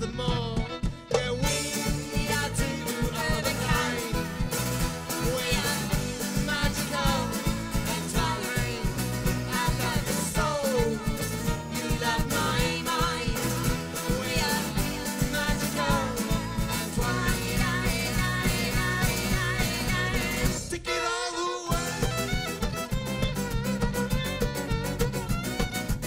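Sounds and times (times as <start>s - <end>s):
folk band playing: 0.0s - 26.0s.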